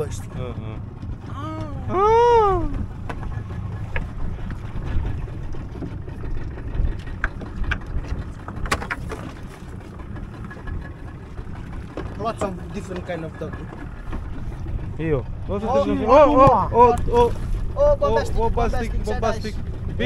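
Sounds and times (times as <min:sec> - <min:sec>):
low outdoor rumble: 0:00.0 - 0:20.0
person's drawn-out call: 0:01.3 - 0:02.8.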